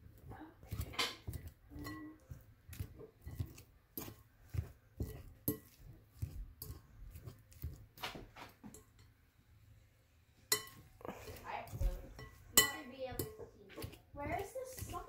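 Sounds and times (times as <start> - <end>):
fork scraping a glass bowl: 0.7 - 7.8.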